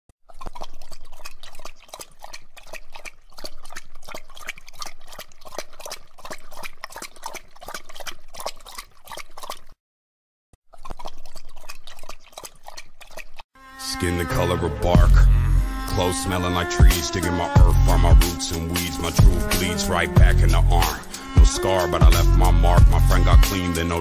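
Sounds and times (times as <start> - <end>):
cat drinking: 0.3 - 9.8, 10.7 - 13.4, 16.4 - 23.4.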